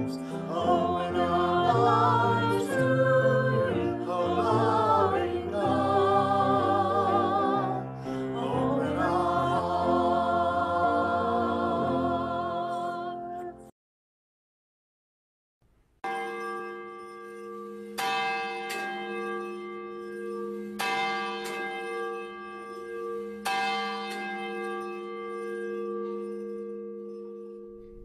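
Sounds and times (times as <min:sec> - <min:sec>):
church bell tolling: 0:16.1 - 0:28.0.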